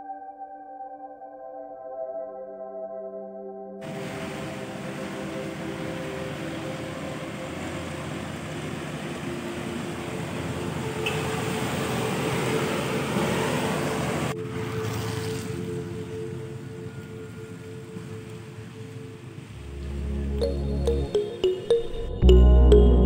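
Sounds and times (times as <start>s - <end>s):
tyres hissing on wet asphalt: 3.8s - 15.7s
truck engine drone: 3.8s - 23.0s.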